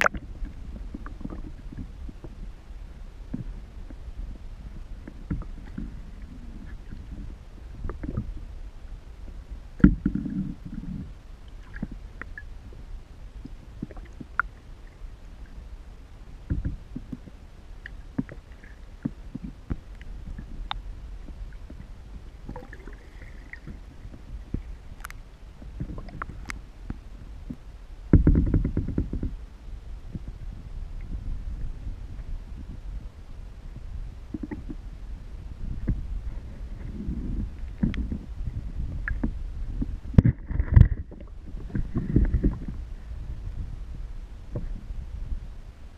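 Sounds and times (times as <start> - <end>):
underwater clicks and knocks: 0.0 - 2.4, 5.0 - 6.0, 7.8 - 8.4, 9.8 - 10.9, 16.5 - 18.4, 22.4 - 29.4, 34.3 - 34.8, 36.8 - 38.2, 38.8 - 42.8
underwater water rumble: 0.0 - 45.9.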